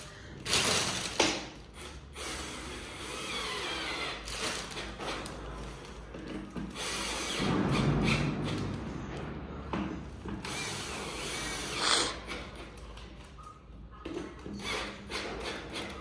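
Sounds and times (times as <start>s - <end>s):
rustling of plastic wrap: 0.4s - 1.2s.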